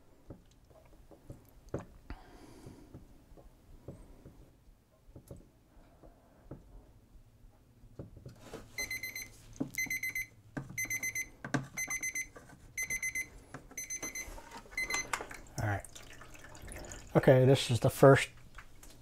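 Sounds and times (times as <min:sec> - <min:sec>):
digital timer alarm beeping: 0:08.8 - 0:15.1.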